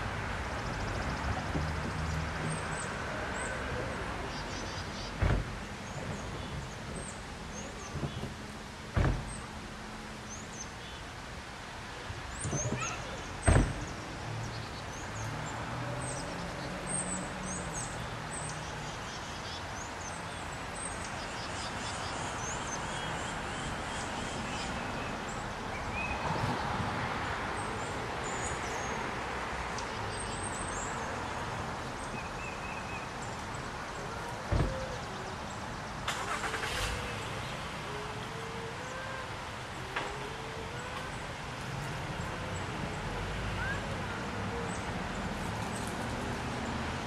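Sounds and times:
traffic rumble: 0:00.0 - 0:47.0
small birds chirping: 0:00.5 - 0:09.6, 0:12.2 - 0:46.8
sharp thump: 0:05.2 - 0:06.2, 0:08.9 - 0:09.4, 0:12.4 - 0:13.9, 0:34.5 - 0:34.9.

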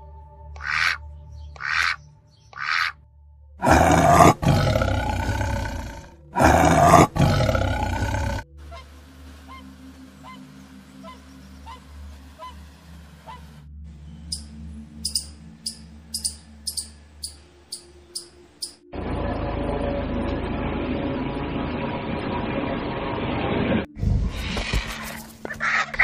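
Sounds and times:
tiger roaring: 0:03.6 - 0:08.5.

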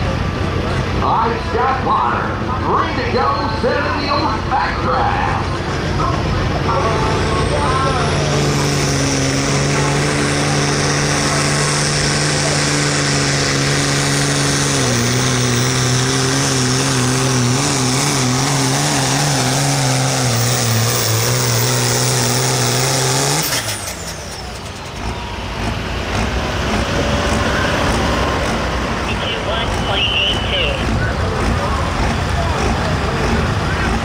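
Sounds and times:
tractor engine under load: 0:00.0 - 0:34.0.

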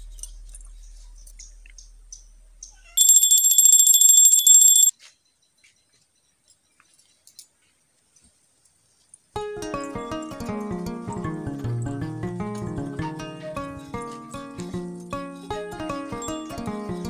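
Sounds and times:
faint ticks and rustles: 0:00.0 - 0:10.0
bell ringing rapidly: 0:03.0 - 0:04.9.

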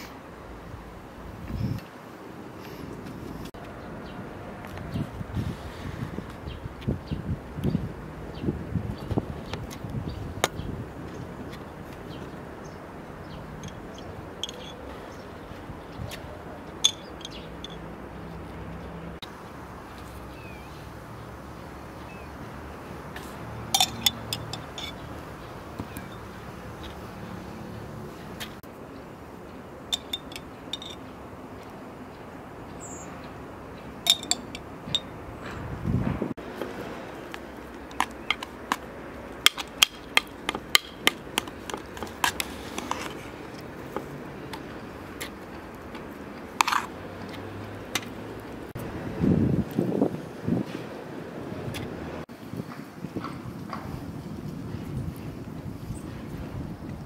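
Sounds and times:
outdoor background noise: 0:00.0 - 0:57.0
teaspoon clinking glass jar: 0:23.8 - 0:25.0, 0:29.9 - 0:31.0, 0:34.1 - 0:35.1.

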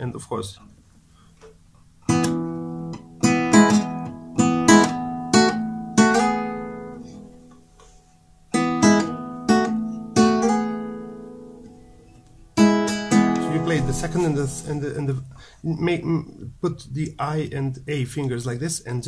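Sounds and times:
fingerpicked acoustic guitar: 0:01.0 - 0:15.5.

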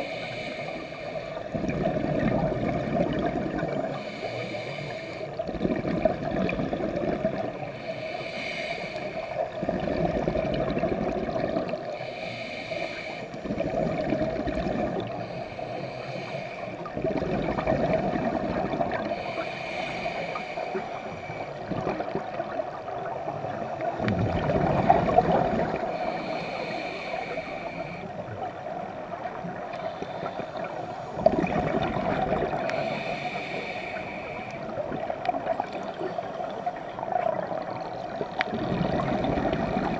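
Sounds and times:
diver breathing through regulator: 0:00.0 - 0:01.9, 0:03.2 - 0:05.5, 0:07.6 - 0:10.1, 0:11.5 - 0:22.1, 0:24.4 - 0:28.9, 0:29.7 - 0:34.8
bubbling exhale rumble: 0:01.4 - 0:04.2, 0:05.4 - 0:07.8, 0:09.5 - 0:12.0, 0:13.4 - 0:15.5, 0:16.8 - 0:28.4, 0:29.0 - 0:39.9.

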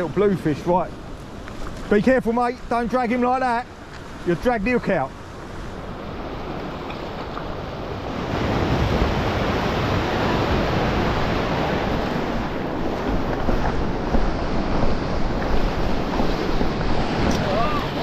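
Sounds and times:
sea washing around rocks: 0:00.0 - 0:18.0
wind buffeting microphone: 0:05.1 - 0:18.0.

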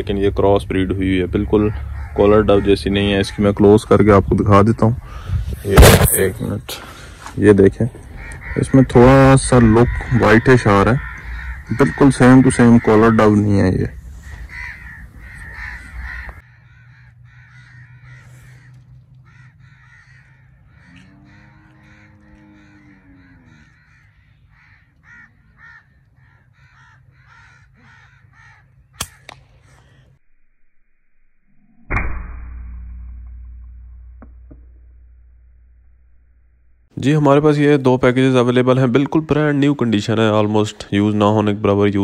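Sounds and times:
birds cawing: 0:00.0 - 0:04.3, 0:06.8 - 0:30.2
air rifle shot: 0:05.7 - 0:06.3, 0:29.0 - 0:29.4, 0:31.9 - 0:34.5
faint sharp crack: 0:29.0 - 0:29.5.

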